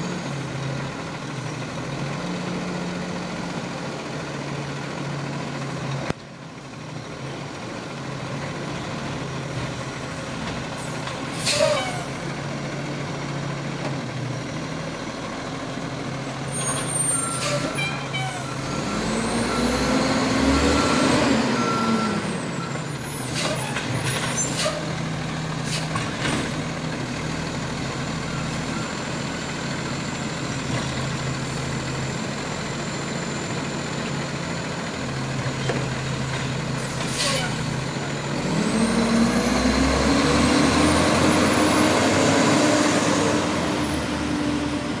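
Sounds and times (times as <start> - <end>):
truck diesel engine running: 0.0 - 45.0
short sharp noises from truck: 11.3 - 12.1, 36.8 - 37.7.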